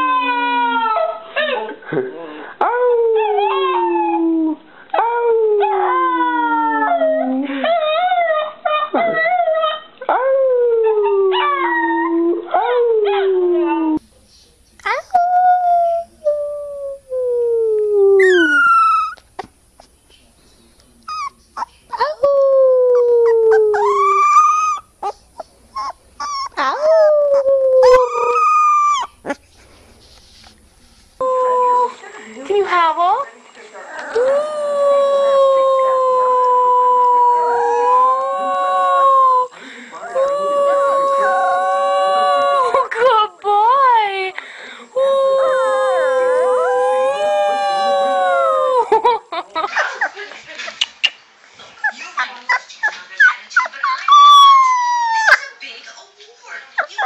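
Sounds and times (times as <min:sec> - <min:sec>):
puppy howling: 0:17.0 - 0:19.2, 0:21.1 - 0:29.4, 0:34.0 - 0:42.8, 0:45.4 - 0:49.0, 0:53.2 - 0:55.4
puppy yelps: 0:18.2 - 0:19.3, 0:21.1 - 0:22.3, 0:22.9 - 0:25.2, 0:25.8 - 0:29.3, 0:51.8 - 0:55.4.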